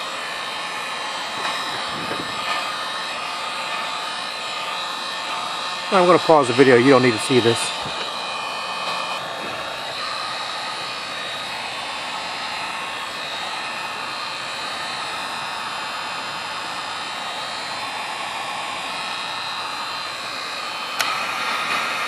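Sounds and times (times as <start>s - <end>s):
heat gun blowing hot air: 0.0s - 22.0s.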